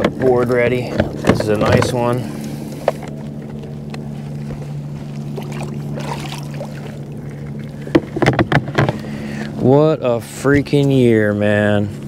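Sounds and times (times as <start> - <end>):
steady low hum: 0.0 - 12.0
water splash: 5.1 - 7.9.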